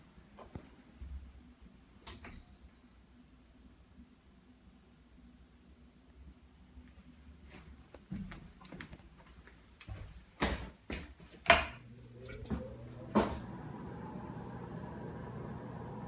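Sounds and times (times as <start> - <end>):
exhaust fan motor whine: 11.6 - 16.0.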